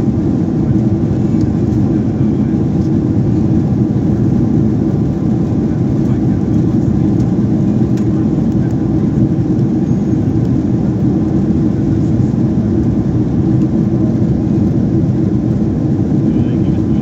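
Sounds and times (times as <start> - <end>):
jet airliner cabin noise: 0.0 - 17.0.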